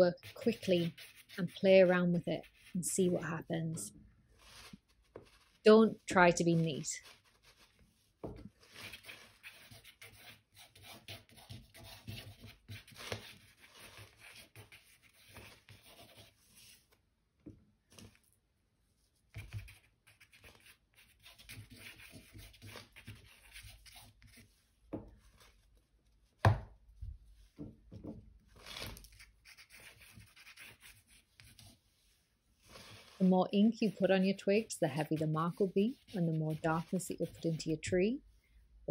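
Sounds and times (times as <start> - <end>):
twig scratching on paper: 0.0 - 3.2, 8.6 - 16.8, 19.3 - 24.5, 28.6 - 31.8, 32.6 - 37.8.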